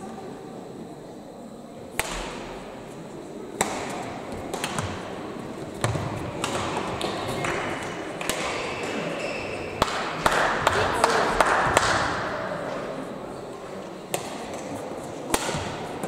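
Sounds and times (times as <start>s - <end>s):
hall chatter: 0.0s - 16.0s
rackets hitting shuttlecock: 2.0s - 2.6s, 3.6s - 5.2s, 5.8s - 9.2s, 9.8s - 12.2s, 14.1s - 16.0s.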